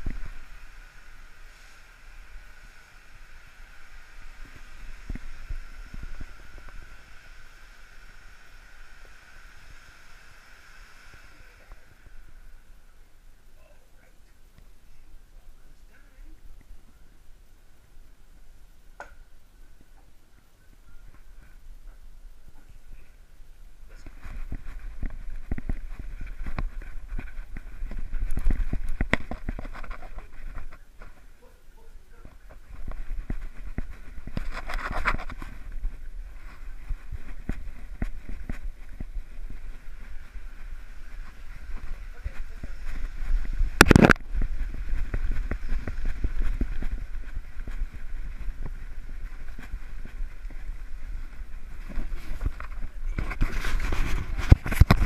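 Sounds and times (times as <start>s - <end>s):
fur and strap rubbing on camera: 23.9s - 55.0s.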